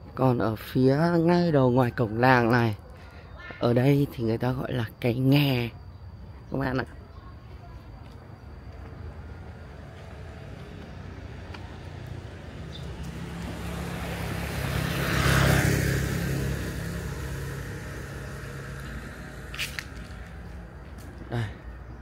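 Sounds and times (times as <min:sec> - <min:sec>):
vehicle driving past: 0:08.9 - 0:22.0.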